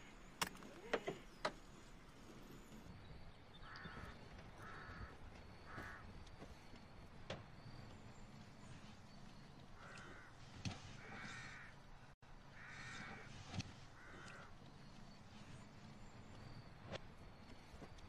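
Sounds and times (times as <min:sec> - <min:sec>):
crows cawing: 0:03.5 - 0:06.5, 0:09.6 - 0:15.5.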